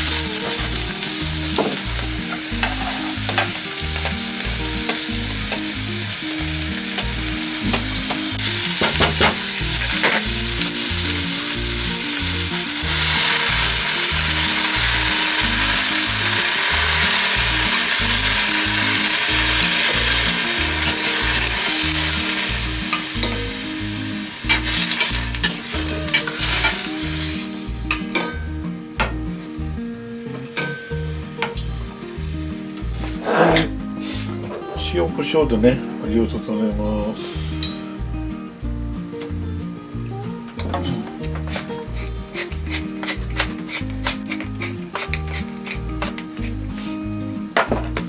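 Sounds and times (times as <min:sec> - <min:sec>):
food sizzling in hot oil: 0:00.0 - 0:34.5, 0:35.2 - 0:47.9
utensils clicking against pan: 0:01.6 - 0:04.2, 0:06.9 - 0:10.3, 0:24.5 - 0:26.9, 0:40.6 - 0:46.6.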